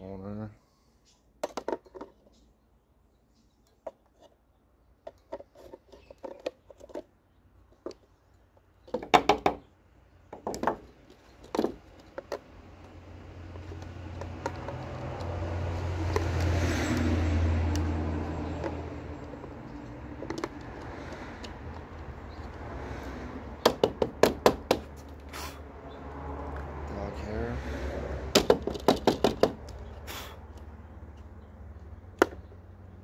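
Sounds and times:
hard plastic clicks and knocks: 0:20.2 - 0:21.6.

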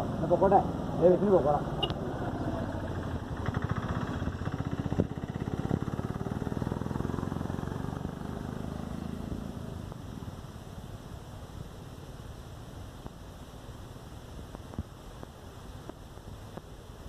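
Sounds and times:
vehicle engine throbbing: 0:01.4 - 0:10.0.

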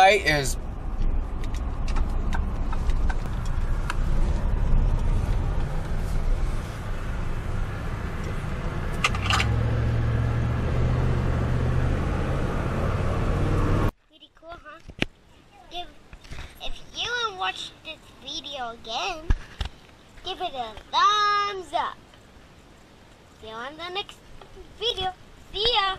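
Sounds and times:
low engine hum: 0:00.0 - 0:14.0
road and wind noise: 0:00.0 - 0:25.9.

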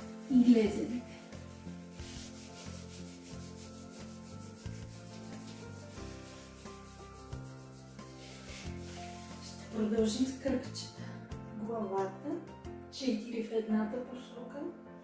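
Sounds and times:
soft background music: 0:00.0 - 0:15.0
hands rubbing skin: 0:01.4 - 0:09.6.

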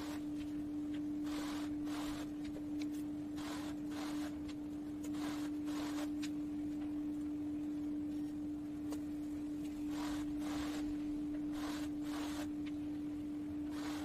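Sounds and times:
steady hum: 0:00.0 - 0:14.0
hand rubbing strips on wood: 0:09.8 - 0:12.7.

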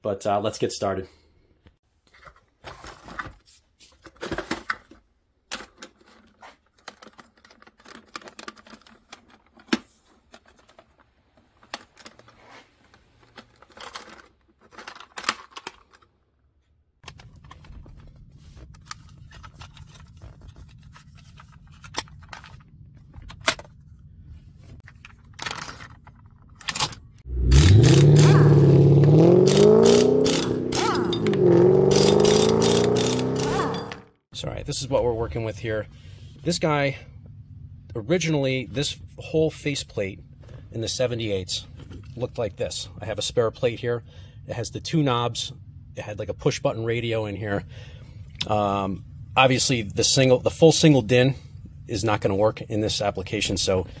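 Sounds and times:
plastic cassette cases clicking: 0:04.1 - 0:12.3, 0:13.2 - 0:16.1.

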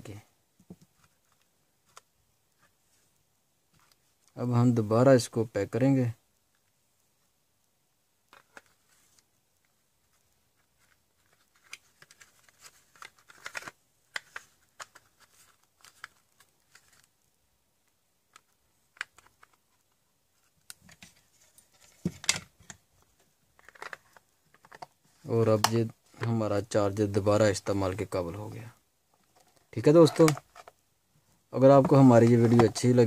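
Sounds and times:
plastic housing clicks and rustles: 0:08.3 - 0:09.3, 0:10.6 - 0:17.1, 0:18.3 - 0:19.9, 0:20.6 - 0:26.4, 0:29.1 - 0:30.8, 0:31.6 - 0:33.0.

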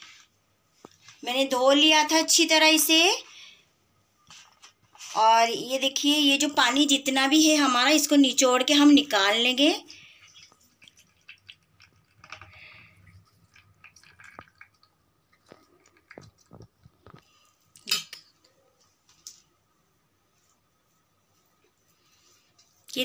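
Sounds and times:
wet squelching and dripping: 0:09.9 - 0:17.9.

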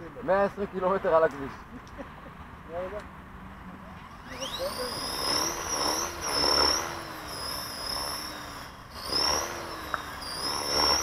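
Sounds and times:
toy helicopter rotor whine: 0:04.0 - 0:11.0.

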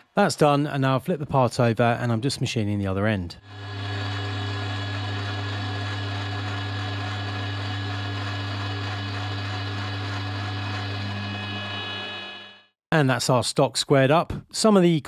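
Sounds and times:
milling machine hum and whine: 0:03.5 - 0:12.6.

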